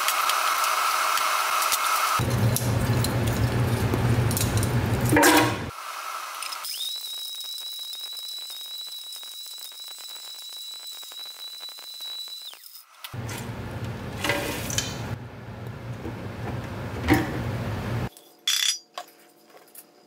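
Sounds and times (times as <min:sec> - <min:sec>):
blender whining: 0:00.0 - 0:02.8.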